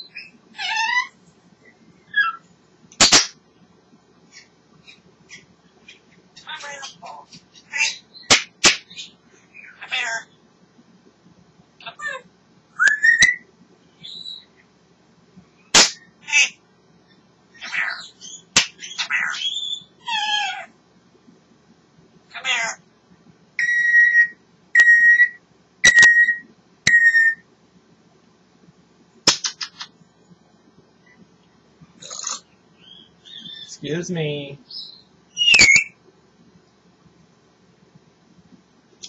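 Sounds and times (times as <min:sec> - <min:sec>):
parrot squawking: 0:00.1 - 0:01.2, 0:02.1 - 0:02.4, 0:06.4 - 0:10.3, 0:15.8 - 0:16.6, 0:17.6 - 0:20.7, 0:22.3 - 0:22.8
parrot whistling: 0:23.6 - 0:27.4, 0:35.3 - 0:36.0.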